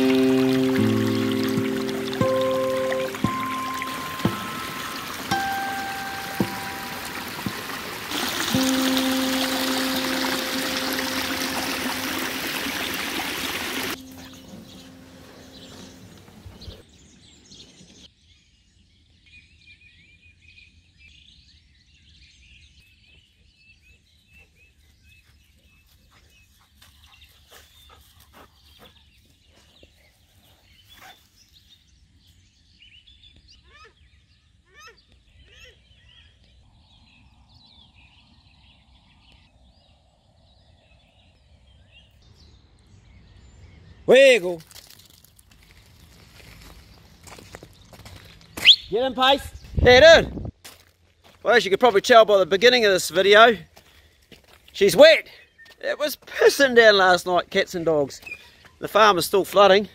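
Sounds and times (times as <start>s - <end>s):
water rushing down a channel: 0.0s - 14.6s
background music: 0.0s - 16.5s
birds chirping: 0.0s - 18.3s, 21.2s - 44.4s, 51.4s - 59.9s.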